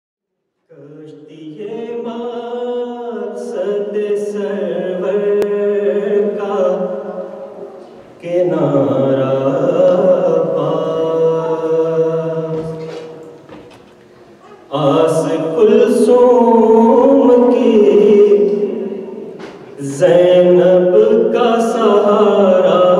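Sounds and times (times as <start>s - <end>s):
man chanting: 0.7s - 7.6s, 8.2s - 13.3s, 14.7s - 22.9s.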